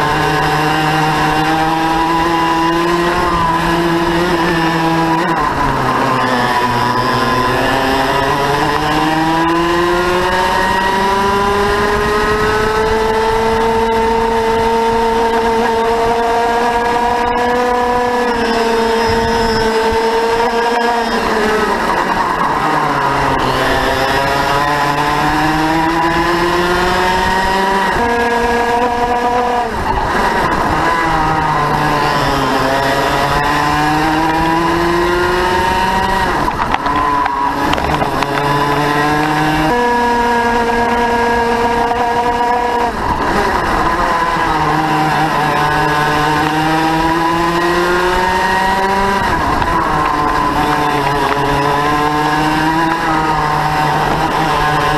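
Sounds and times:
kart two-stroke engine at racing revs: 0:00.0 - 0:54.9.

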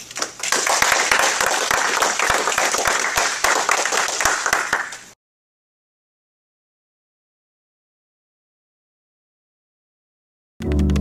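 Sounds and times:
audience applause: 0:00.0 - 0:05.1.

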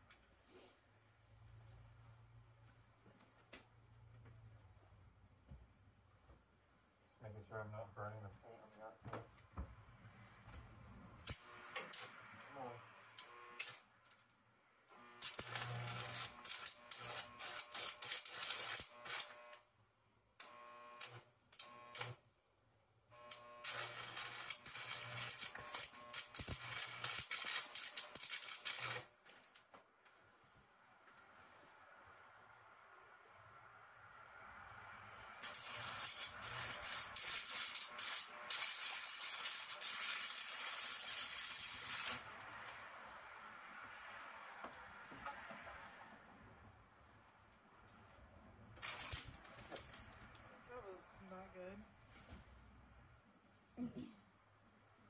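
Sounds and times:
welding arc crackling: 0:11.2 - 0:13.8, 0:15.0 - 0:19.6, 0:20.5 - 0:22.2, 0:23.3 - 0:29.6, 0:35.4 - 0:42.8, 0:48.8 - 0:50.4.

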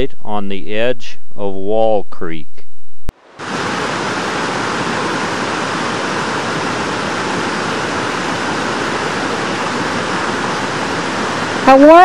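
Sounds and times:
creek water rushing: 0:03.2 - 0:12.0.

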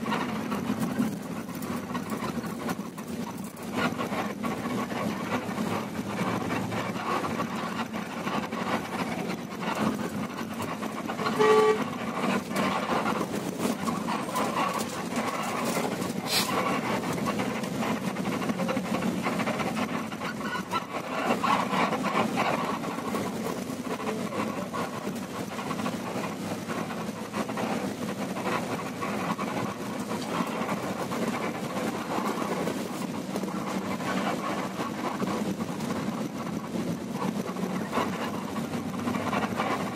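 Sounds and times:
bus engine and road rumble: 0:00.0 - 0:39.9
horn honk: 0:11.2 - 0:12.0.

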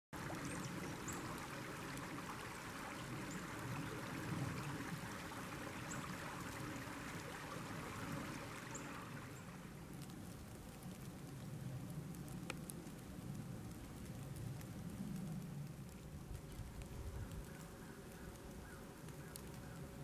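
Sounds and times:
creek water flowing: 0:00.1 - 0:20.0
faint high bird calls: 0:17.1 - 0:20.0.

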